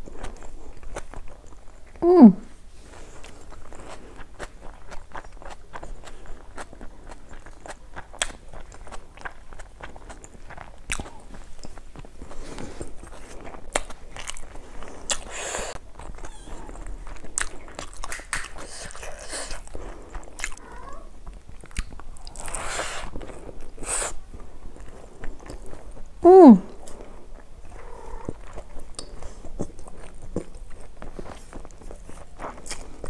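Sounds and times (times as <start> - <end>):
wet chewing and lip smacks: 3.2 - 33.0.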